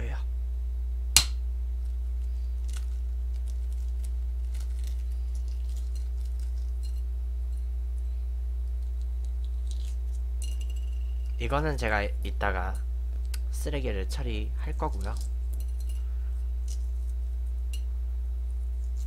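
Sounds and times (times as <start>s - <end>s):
steady low hum: 0.0s - 19.0s
eggshell cracking and peeling: 2.6s - 7.0s, 8.6s - 11.4s.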